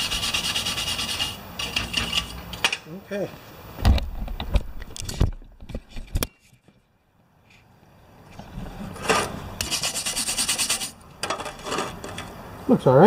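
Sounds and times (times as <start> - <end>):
scraping rubbing noise: 0.0 - 2.4, 8.8 - 12.2
handling knocks and thumps: 3.8 - 6.8.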